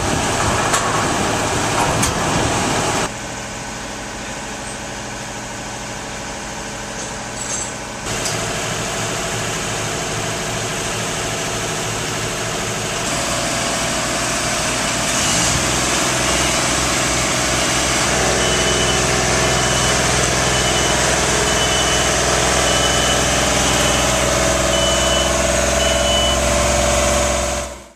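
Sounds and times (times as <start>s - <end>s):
machinery engine running: 8.1s - 27.9s.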